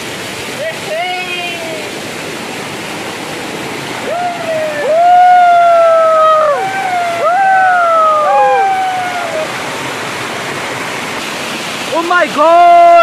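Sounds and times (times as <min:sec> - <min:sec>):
waterfall rushing: 0:00.0 - 0:13.0
people hollering long calls: 0:04.0 - 0:09.6.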